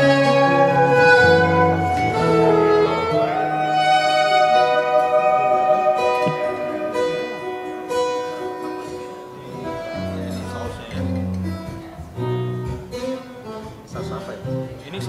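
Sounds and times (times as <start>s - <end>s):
low bass notes: 0.0s - 8.6s
plucked guitar-like notes: 0.0s - 15.0s.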